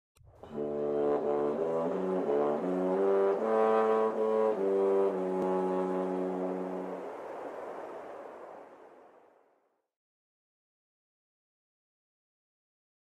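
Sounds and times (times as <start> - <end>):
brass theme music: 0.4 - 7.2.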